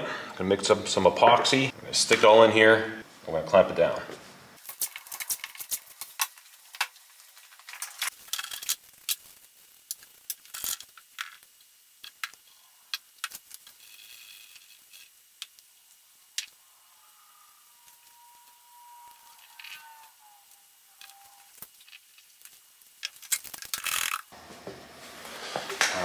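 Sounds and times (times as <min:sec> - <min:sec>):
small objects clicking and tapping: 0:04.6 - 0:15.8.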